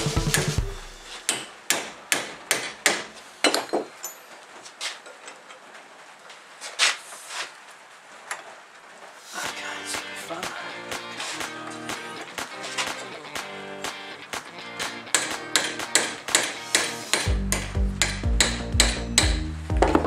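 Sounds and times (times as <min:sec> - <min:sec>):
hammer striking steel bar: 0:00.3 - 0:03.6, 0:15.1 - 0:20.0.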